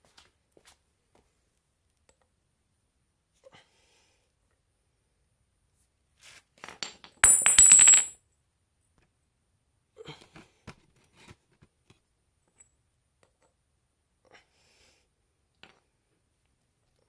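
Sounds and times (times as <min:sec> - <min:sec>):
metal part clattering on hard surface: 0:06.8 - 0:08.2.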